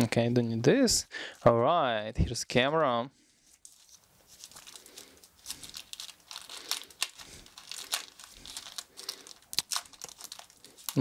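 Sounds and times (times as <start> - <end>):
plastic wrap crinkling: 3.5 - 11.0.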